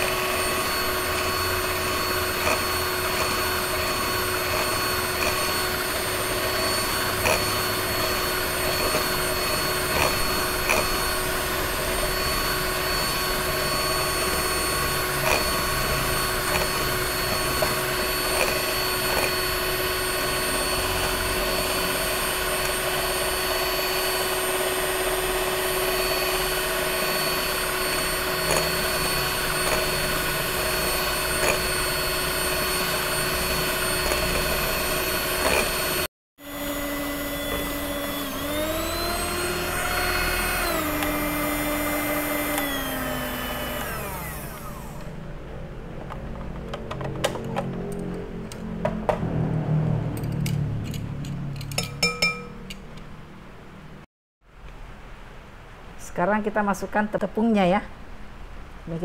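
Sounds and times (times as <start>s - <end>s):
electric hand mixer whisking: 0.0s - 45.2s.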